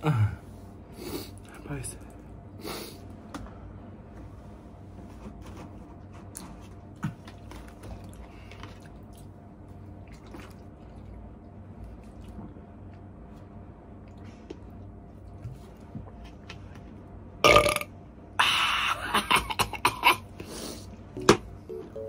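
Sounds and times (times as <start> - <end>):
steady low hum: 0.0 - 22.0
person drinking water: 7.0 - 9.3, 9.9 - 12.6.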